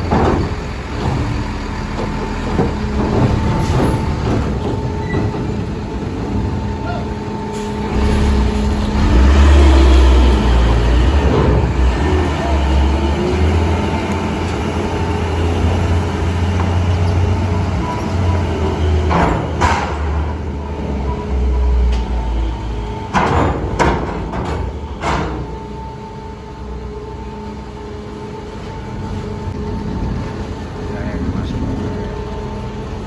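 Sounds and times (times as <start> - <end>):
heavy vehicle engine rumbling: 0.0 - 33.0
sharp knocks: 19.0 - 20.3.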